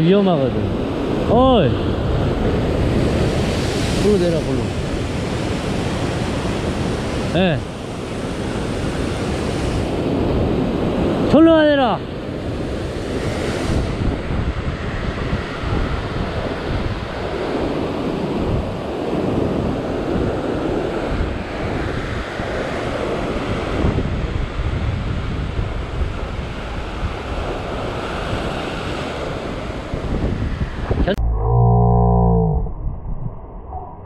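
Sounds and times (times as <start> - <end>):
wind buffeting microphone: 0.0 - 11.3, 12.1 - 34.0
ocean waves breaking over rocks: 0.0 - 30.9.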